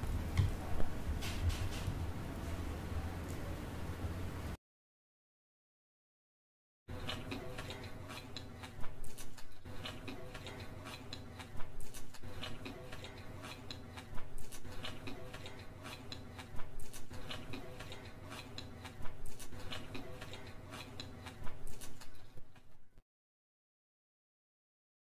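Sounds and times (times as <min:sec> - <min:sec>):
wet chewing of noodles: 0:06.9 - 0:22.8.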